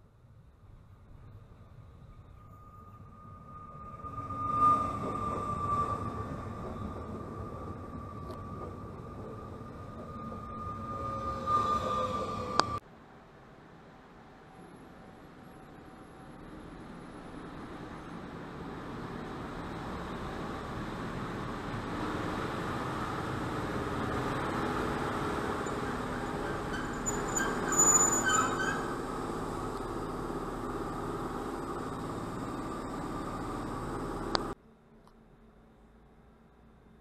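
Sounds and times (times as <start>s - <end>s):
electric locomotives humming past: 1.6s - 12.8s, 14.3s - 34.6s
brief metallic squeal: 2.4s - 7.0s, 10.0s - 12.8s, 25.6s - 29.0s.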